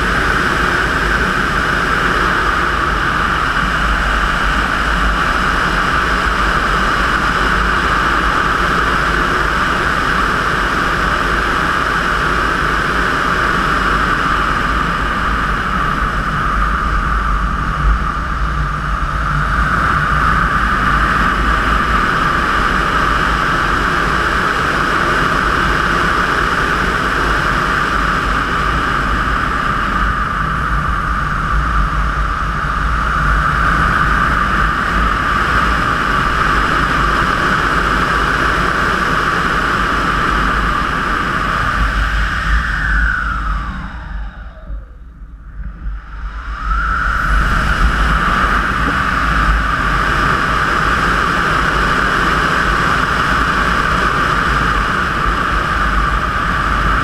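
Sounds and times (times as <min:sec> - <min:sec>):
wind buffeting rumble: 0:00.0 - 0:57.0
rushing airflow hiss: 0:45.5 - 0:57.0.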